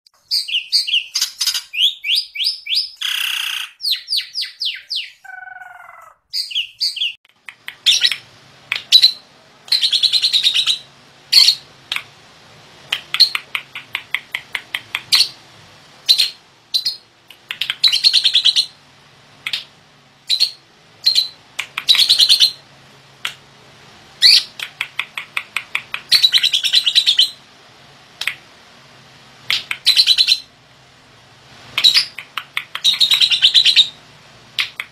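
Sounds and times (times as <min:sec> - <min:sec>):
lovebird chattering chirps: 0:00.2 - 0:12.1, 0:12.9 - 0:15.4, 0:16.0 - 0:18.8, 0:19.4 - 0:22.6, 0:24.2 - 0:27.4, 0:29.5 - 0:30.5, 0:31.8 - 0:34.0.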